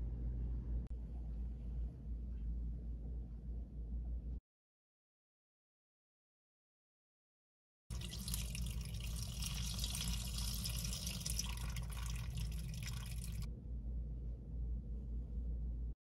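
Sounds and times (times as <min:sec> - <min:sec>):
steady low hum: 0:00.0 - 0:04.4, 0:07.9 - 0:16.0
water pouring into sink: 0:07.9 - 0:13.5.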